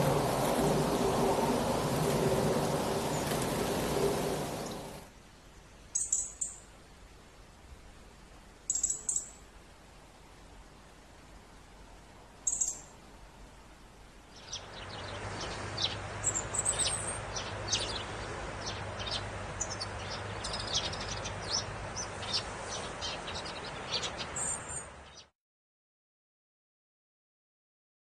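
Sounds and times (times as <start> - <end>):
outdoor background hiss: 0.0 - 25.3
robin chirping: 5.9 - 6.6, 8.7 - 9.4, 12.4 - 12.9, 14.3 - 25.3.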